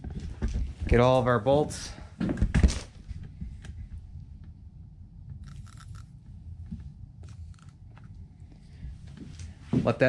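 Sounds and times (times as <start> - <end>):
low rumble: 3.0 - 9.6.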